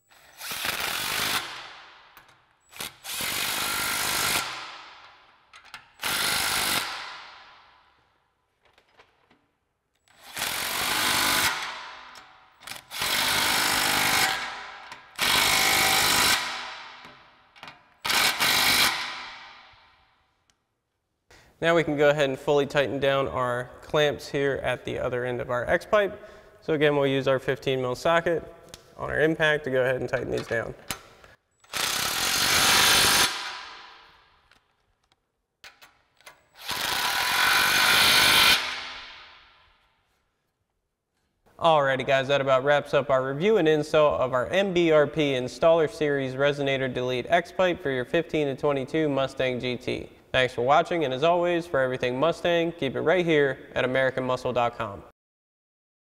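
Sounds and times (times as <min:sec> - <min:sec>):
impact wrench hammering: 0:00.3 - 0:07.8, 0:10.1 - 0:20.1, 0:30.4 - 0:34.4, 0:35.6 - 0:39.6.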